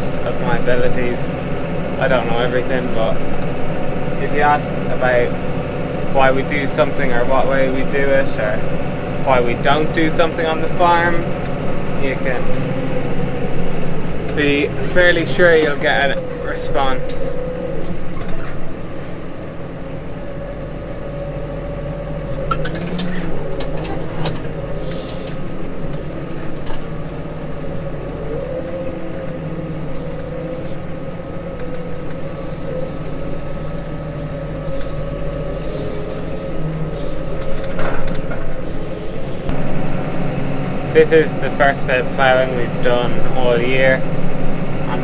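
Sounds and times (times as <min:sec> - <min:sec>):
steady whine: 0:00.0 - 0:45.0
tractor engine running: 0:00.0 - 0:45.0.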